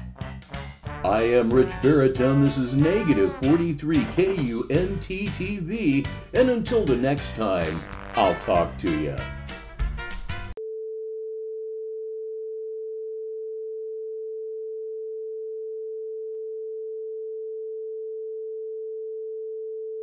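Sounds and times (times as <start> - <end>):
music: 0.0 - 10.6.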